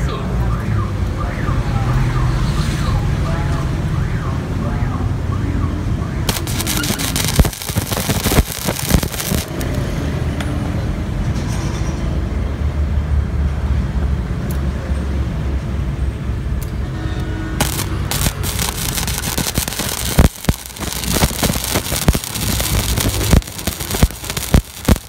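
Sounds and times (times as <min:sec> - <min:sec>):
welder arc crackling: 0:06.3 - 0:09.9, 0:17.6 - 0:25.0.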